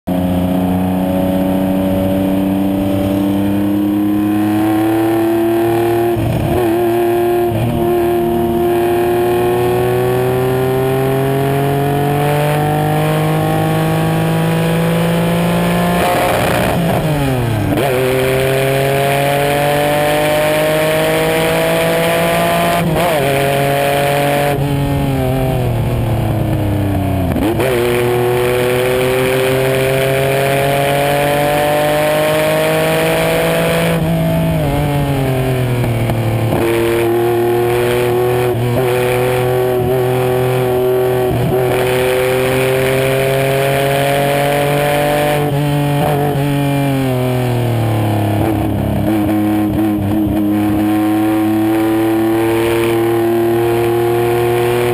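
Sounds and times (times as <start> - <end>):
race car engine: 0.1 - 54.9
wind and road rush: 0.1 - 54.9.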